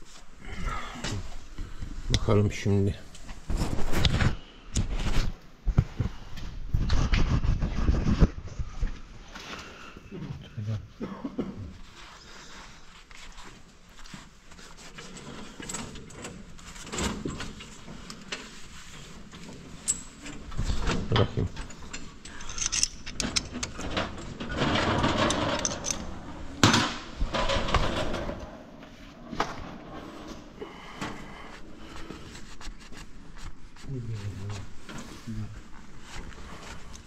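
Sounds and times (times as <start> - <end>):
handling clicks and knocks: 19.8 - 27.9.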